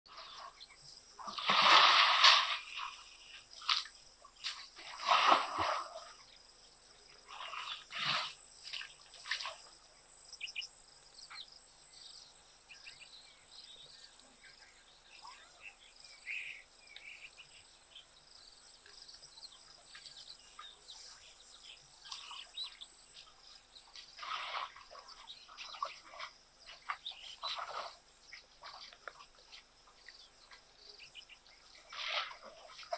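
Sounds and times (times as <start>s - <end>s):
elephant splashing water: 1.2s - 6.2s, 24.0s - 30.8s, 31.7s - 32.9s
faint bird chirps: 6.1s - 32.9s.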